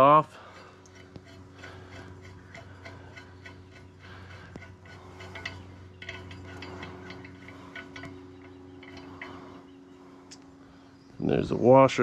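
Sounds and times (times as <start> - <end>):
steady low hum: 0.0 - 12.0
metallic clicking of nut: 0.8 - 9.6.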